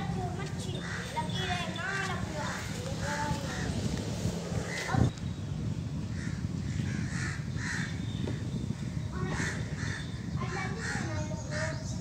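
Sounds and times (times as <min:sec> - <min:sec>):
crows cawing: 0:00.7 - 0:03.8, 0:04.6 - 0:05.1, 0:06.1 - 0:11.8.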